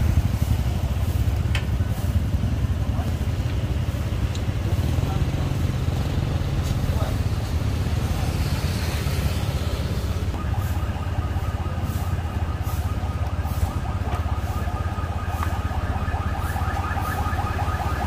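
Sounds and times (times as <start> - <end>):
scooter engine idling: 0.0 - 6.3
street traffic: 0.0 - 18.0.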